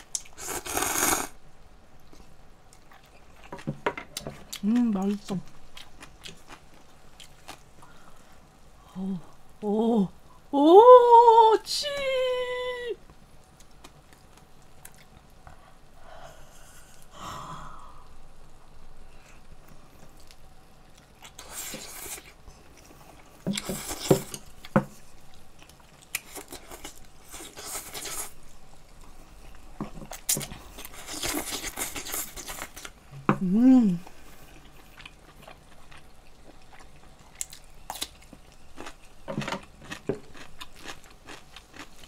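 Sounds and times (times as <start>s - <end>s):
woman slurping noodles: 0.4s - 1.3s.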